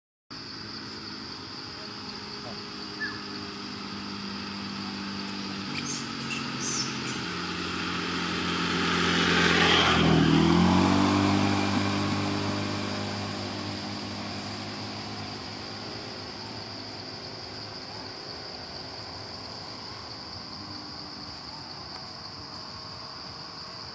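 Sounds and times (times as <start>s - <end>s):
vehicle driving past: 0.7s - 23.8s.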